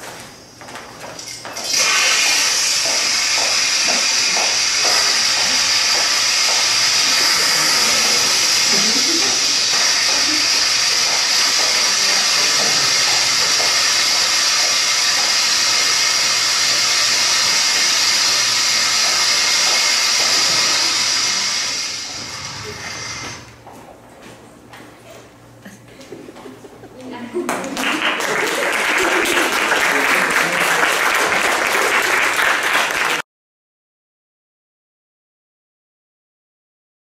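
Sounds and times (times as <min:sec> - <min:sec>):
audience applause: 0:01.8 - 0:22.0, 0:27.5 - 0:33.2.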